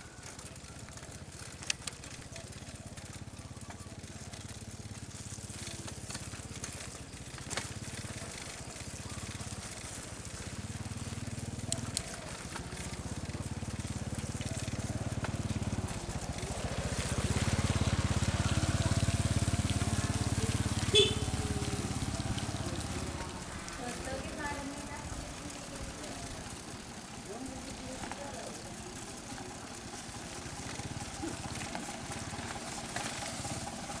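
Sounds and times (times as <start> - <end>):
small engine throbbing: 0.0 - 34.0
faint clicks: 11.3 - 13.0.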